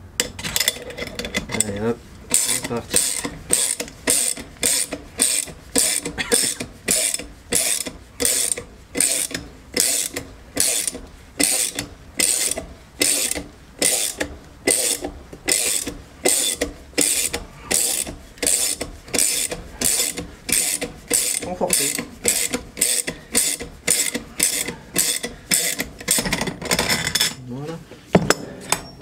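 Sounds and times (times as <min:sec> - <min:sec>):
ratchet wrench clicking: 0:02.3 - 0:26.3.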